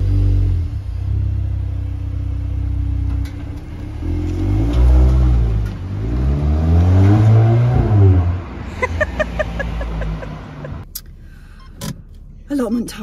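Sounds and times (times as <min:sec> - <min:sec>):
car engine idling and revving: 0:00.0 - 0:13.0.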